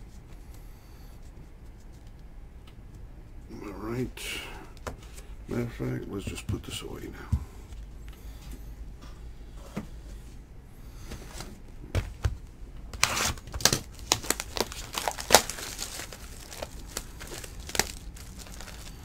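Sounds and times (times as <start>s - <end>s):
shrink wrap crinkling and tearing: 13.0s - 19.0s.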